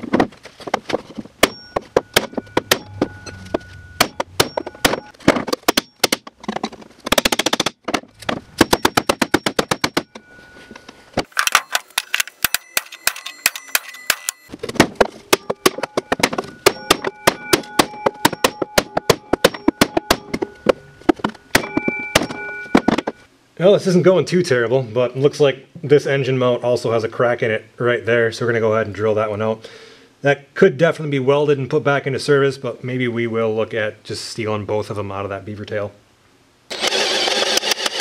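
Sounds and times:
metal ringing: 1.3 - 6.3, 8.2 - 23.3.

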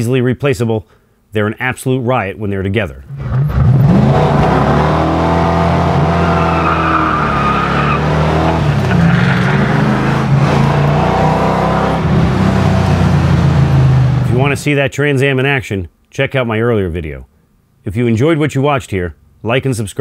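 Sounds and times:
car engine pulling hard: 3.1 - 14.6.

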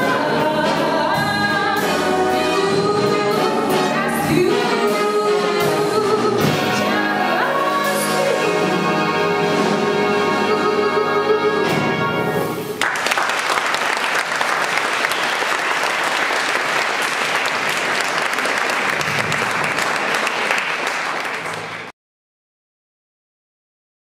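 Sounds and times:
audience applauding: 12.7 - 21.9.

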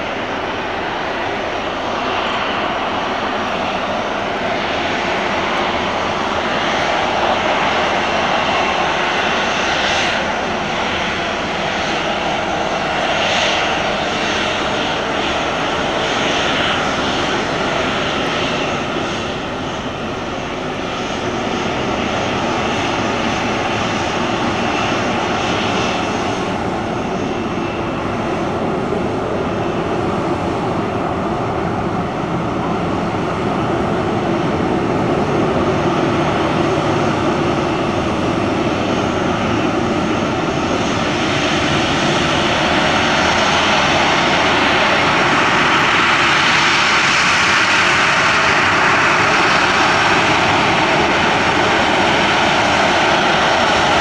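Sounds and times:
jet engines with high whine: 0.0 - 54.0.

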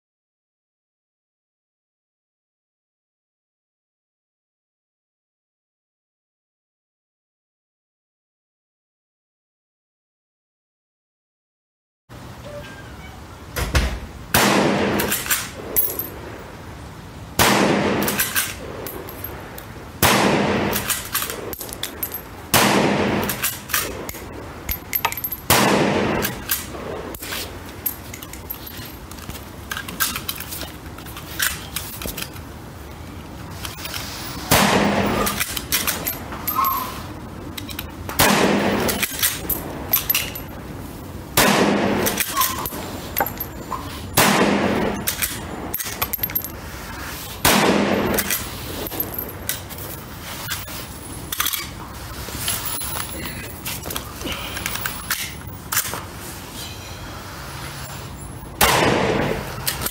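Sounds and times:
rifle shots echoing: 14.3 - 15.2, 17.4 - 18.8, 20.0 - 21.5, 22.5 - 24.1, 25.4 - 27.0, 34.5 - 35.4, 38.2 - 39.1, 41.4 - 42.2, 44.2 - 45.1, 47.4 - 48.3, 58.6 - 59.6.

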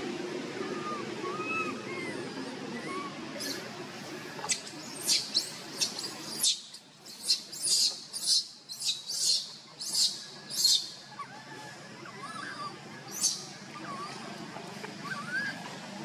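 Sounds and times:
baby monkey squeaking: 2.8 - 11.3, 12.2 - 14.2.

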